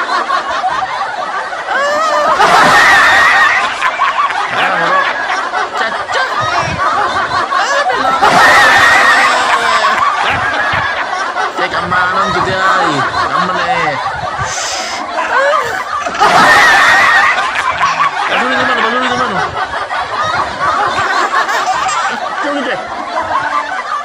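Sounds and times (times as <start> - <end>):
laughter: 0.0 - 24.0.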